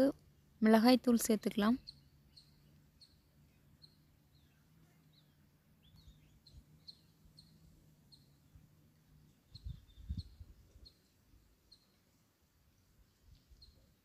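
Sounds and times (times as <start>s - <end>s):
small bird chirping: 0.1s - 14.0s.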